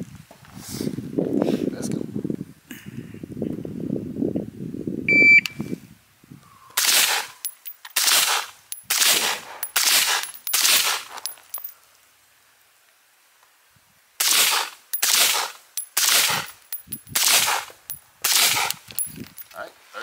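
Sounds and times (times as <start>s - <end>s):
shot timer beep: 5.1s - 5.6s
gunshots: 17.2s - 17.7s.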